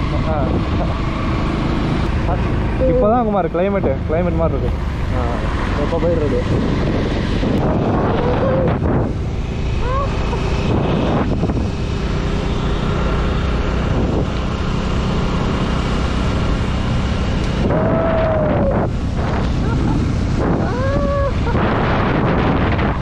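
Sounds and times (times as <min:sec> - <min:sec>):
motorcycle engine drone: 0:00.0 - 0:23.0
wind noise on microphone: 0:05.7 - 0:12.2, 0:13.8 - 0:14.4, 0:17.3 - 0:23.0.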